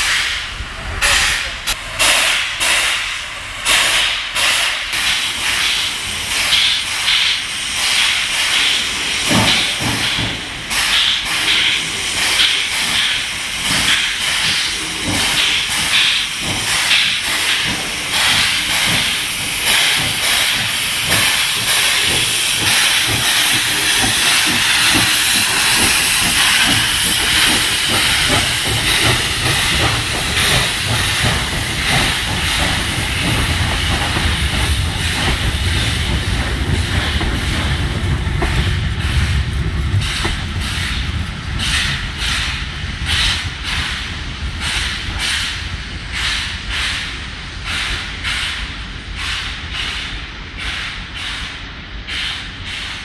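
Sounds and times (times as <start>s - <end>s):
steam hissing from cylinder cocks: 0.0s - 39.4s
rumble of locomotive and coaches: 0.0s - 53.0s
steam locomotive exhaust chuffs: 0.0s - 53.0s.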